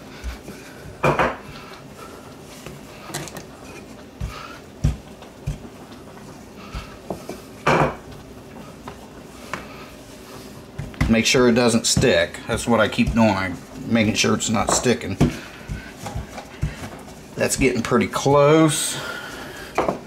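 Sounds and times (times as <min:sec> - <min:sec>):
rolling pin knocking on countertop: 0:01.0 - 0:01.4, 0:14.0 - 0:16.9, 0:19.8 - 0:20.0.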